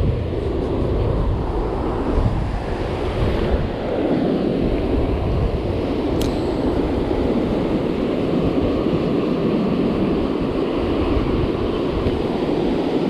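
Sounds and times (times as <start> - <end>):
wind buffeting microphone: 0.0 - 13.0
sharp click: 6.1 - 6.6.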